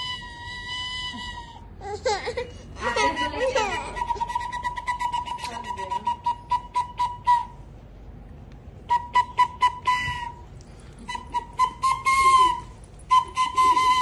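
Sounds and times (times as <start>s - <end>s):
flute short high toots: 8.9s - 14.0s.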